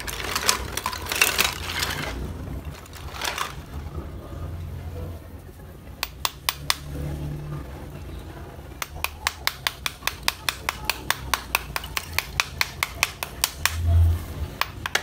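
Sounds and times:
small hammer tapping clay: 0:06.0 - 0:07.0, 0:08.8 - 0:13.8, 0:14.6 - 0:15.0.

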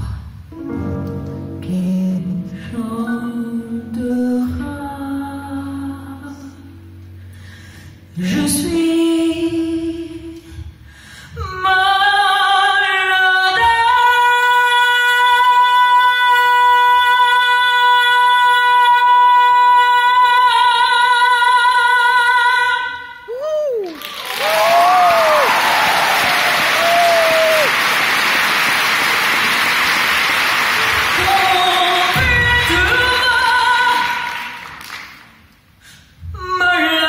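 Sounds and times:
woman singing: 0:01.5 - 0:06.9, 0:08.1 - 0:10.6, 0:11.3 - 0:23.9, 0:30.8 - 0:34.8, 0:36.2 - 0:37.0
audience applause: 0:23.8 - 0:32.2.

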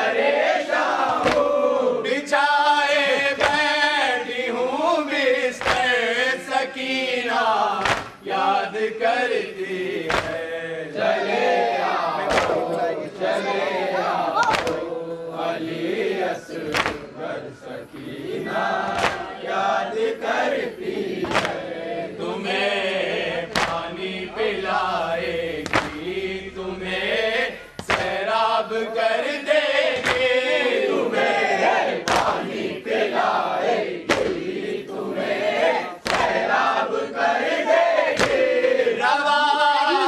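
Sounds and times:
men chanting together: 0:00.0 - 0:40.0
hands slapping chests: 0:01.1 - 0:01.5, 0:03.4 - 0:03.7, 0:05.6 - 0:06.0, 0:07.8 - 0:08.2, 0:10.0 - 0:10.4, 0:12.2 - 0:12.7, 0:14.4 - 0:14.8, 0:16.7 - 0:17.1, 0:18.9 - 0:19.3, 0:21.2 - 0:21.6, 0:23.5 - 0:23.8, 0:25.6 - 0:26.0, 0:27.8 - 0:28.2, 0:29.9 - 0:30.3, 0:32.0 - 0:32.4, 0:34.0 - 0:34.4, 0:36.0 - 0:36.4, 0:38.1 - 0:38.5.

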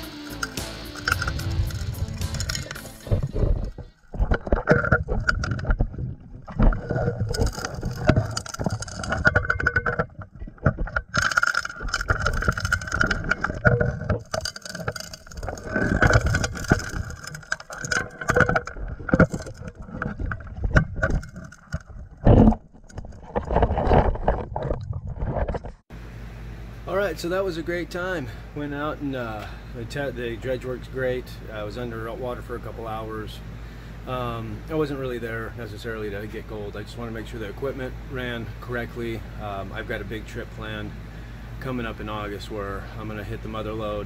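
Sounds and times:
underwater engine and pump drone: 0:00.0 - 0:44.0
diver's exhaled bubbles rushing: 0:01.1 - 0:25.8.

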